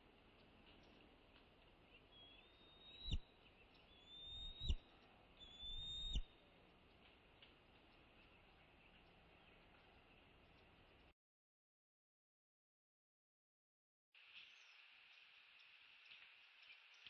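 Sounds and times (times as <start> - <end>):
eagle whistled calls: 2.0 - 6.3.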